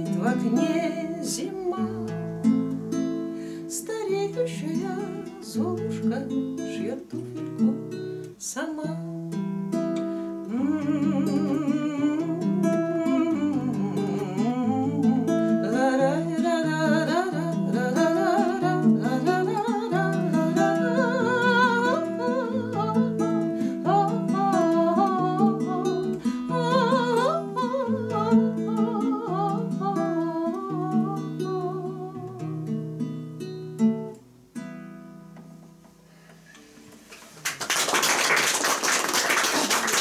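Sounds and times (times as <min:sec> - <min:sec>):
woman singing: 0:00.0 - 0:02.6, 0:03.6 - 0:09.1, 0:10.4 - 0:32.6
fingerpicked classical guitar: 0:00.0 - 0:37.4.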